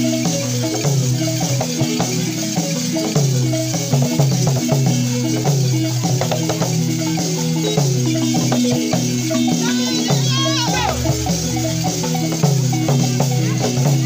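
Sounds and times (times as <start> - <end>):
hand drums: 0.0 - 14.0
wooden xylophone pattern: 0.0 - 14.0.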